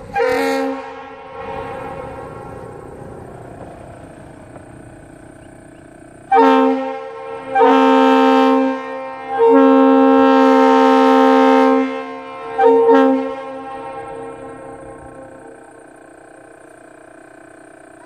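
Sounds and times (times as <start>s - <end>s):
two-note train horn blasts: 0.0s - 2.8s, 6.3s - 15.8s.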